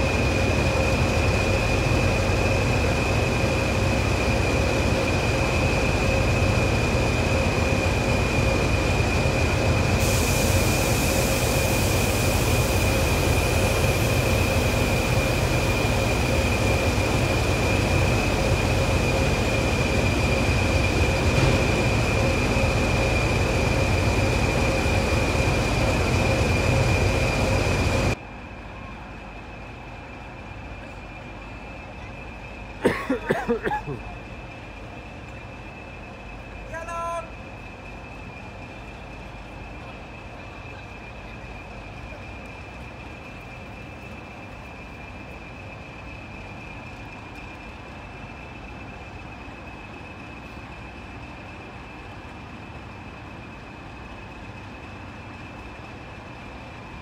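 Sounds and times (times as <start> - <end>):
diesel locomotive engine idling: 0.0 - 57.0
distant station background: 0.0 - 57.0
air hiss: 9.8 - 15.5.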